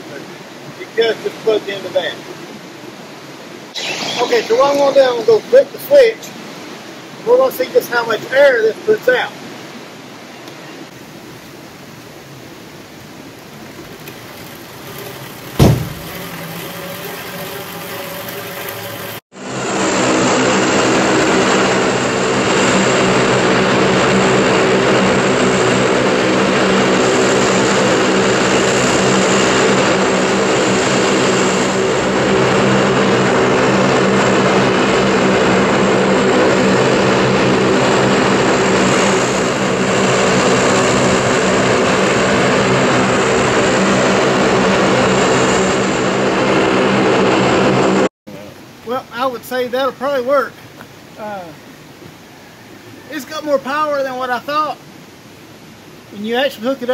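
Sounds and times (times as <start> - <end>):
propeller whirring drone: 2.3 - 7.2, 10.9 - 48.1
sharp thump: 15.6 - 16.2.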